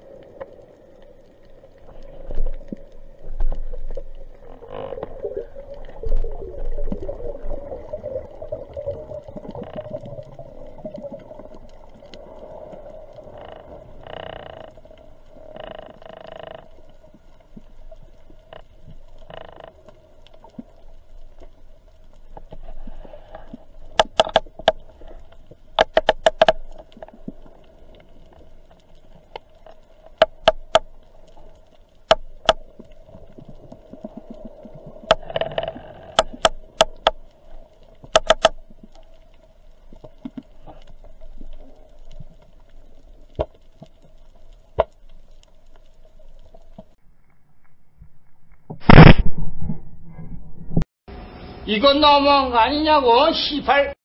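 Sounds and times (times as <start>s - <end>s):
rapid underwater clicks: 8.0s - 47.0s.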